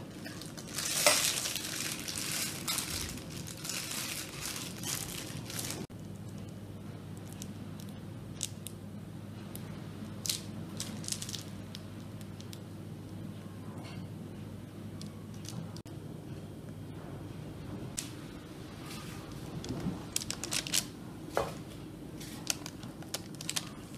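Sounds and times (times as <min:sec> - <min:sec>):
plastic piping bag crinkling: 0:00.0 - 0:06.3, 0:10.2 - 0:12.6, 0:19.6 - 0:21.0, 0:22.2 - 0:23.9
low steady hum: 0:00.0 - 0:23.9.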